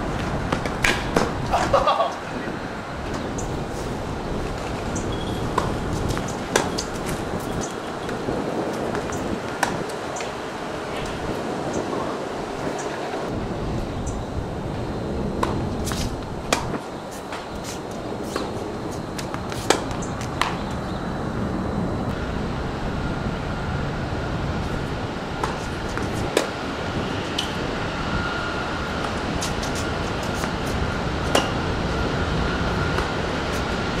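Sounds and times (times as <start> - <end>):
steady noisy background: 0.0 - 34.0
tennis balls struck by rackets: 0.5 - 1.8, 5.5 - 10.4, 15.4 - 20.8, 29.0 - 31.6.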